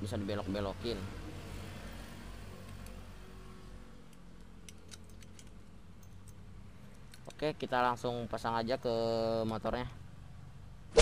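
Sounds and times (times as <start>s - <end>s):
small metal clicks and ticks: 4.0s - 7.6s.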